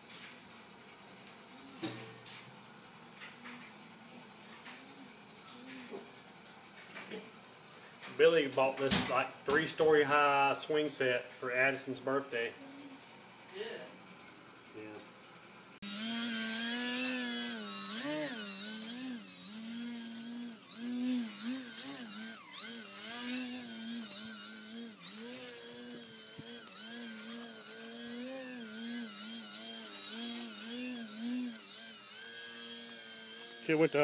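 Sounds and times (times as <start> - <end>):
thin high-pitched whine: 0.0 - 7.3, 15.8 - 34.0
model aircraft motor whining: 15.8 - 34.0.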